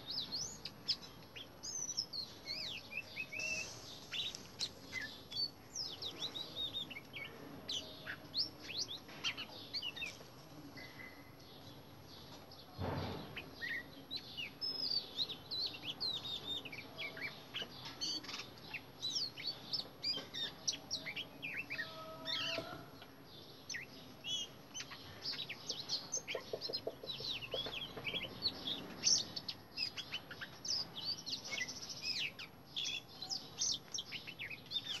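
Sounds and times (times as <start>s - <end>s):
bird singing: 0.0s - 10.2s, 10.8s - 35.0s.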